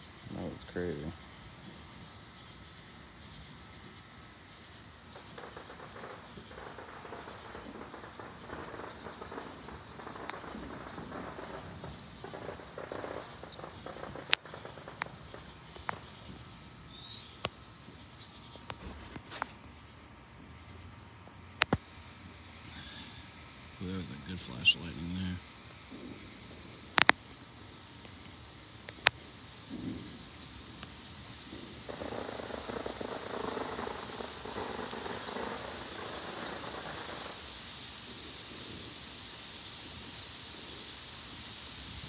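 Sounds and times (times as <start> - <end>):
crickets chirping: 0.0 - 42.0
sharp pops: 5.2 - 16.1, 21.6 - 21.9.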